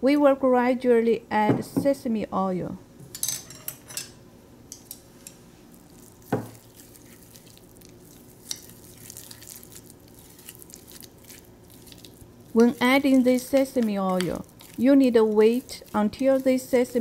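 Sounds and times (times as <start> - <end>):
chopsticks stirring thick paste: 4.8 - 17.0.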